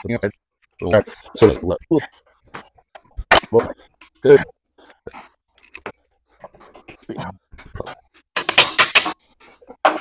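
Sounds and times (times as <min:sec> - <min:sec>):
steel bolts and tools clinking: 0:04.8 - 0:06.0, 0:08.3 - 0:09.3.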